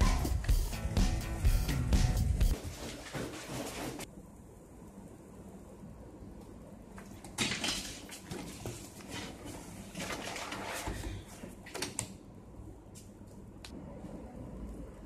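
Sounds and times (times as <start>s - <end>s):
clothing and bag rustling: 2.5s - 4.1s
notebooks shuffled on desk: 2.6s - 4.1s, 7.4s - 11.5s.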